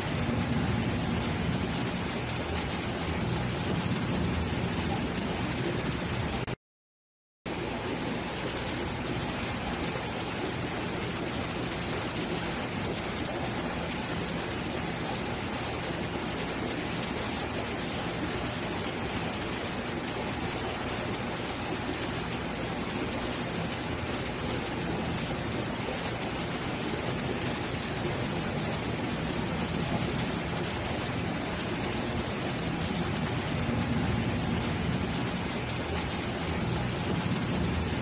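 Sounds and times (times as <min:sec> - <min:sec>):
aquarium water rushing: 0:00.0 - 0:06.6, 0:07.5 - 0:38.0.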